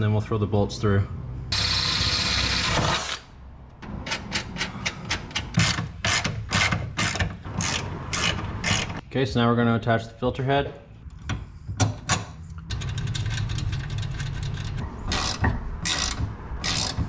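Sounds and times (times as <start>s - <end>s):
ratchet wrench clicking: 12.5s - 17.0s.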